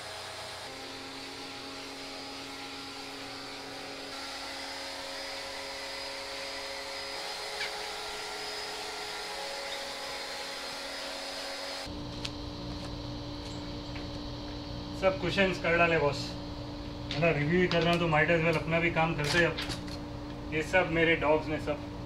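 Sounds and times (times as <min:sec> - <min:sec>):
pressure washer motor whine: 0:00.0 - 0:18.6
low steady hum: 0:11.8 - 0:22.0.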